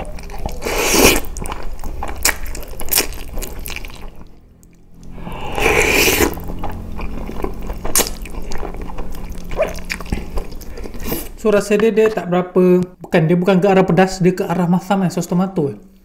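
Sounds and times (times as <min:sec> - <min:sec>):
slurping spaghetti: 0:00.0 - 0:04.2, 0:05.0 - 0:11.4
wet chewing: 0:00.0 - 0:13.1.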